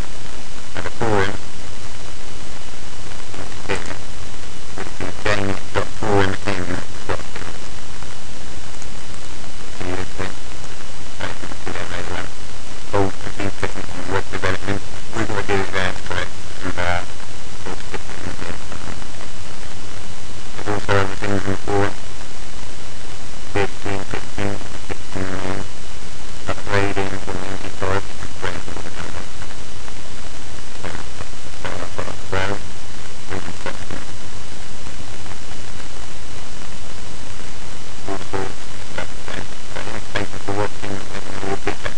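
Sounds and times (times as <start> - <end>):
microphone hiss and hum: 0.0 - 41.9
muffled voice fragments: 0.7 - 1.5, 3.1 - 8.1, 8.8 - 19.4, 20.6 - 22.0, 23.5 - 25.7, 26.4 - 29.7, 30.6 - 34.3, 38.0 - 41.9
indistinct speech: 0.8 - 1.4, 4.8 - 7.4, 9.8 - 10.4, 11.2 - 12.3, 13.0 - 17.1, 20.6 - 22.0, 23.5 - 25.7, 26.5 - 29.3, 30.8 - 32.6, 38.0 - 41.9.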